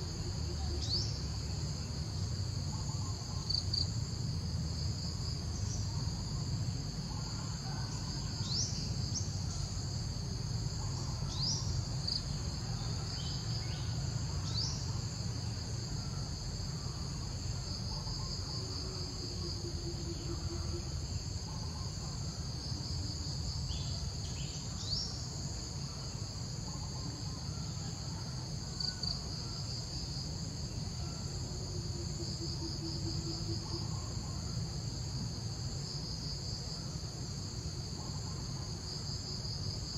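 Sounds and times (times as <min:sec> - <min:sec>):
high shrill insect chorus: 0:00.0 - 0:39.9.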